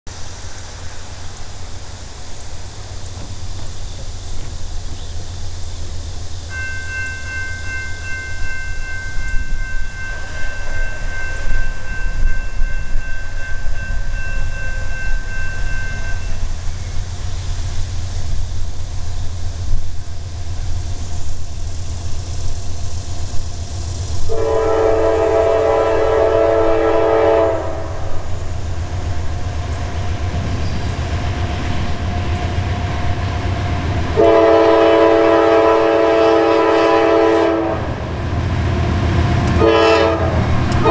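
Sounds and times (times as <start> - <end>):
diesel locomotive rumble: 0.1 - 40.9
locomotive air horn: 24.3 - 28.3, 34.1 - 38.0, 39.6 - 40.9.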